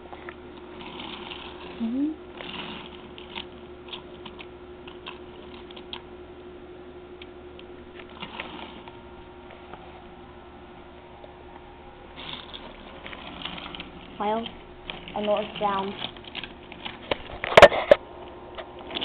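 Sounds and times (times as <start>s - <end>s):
toy train motor hum: 0.7s - 6.0s, 8.2s - 8.9s, 12.2s - 17.4s
wheels clicking on rails: 12.2s - 17.4s.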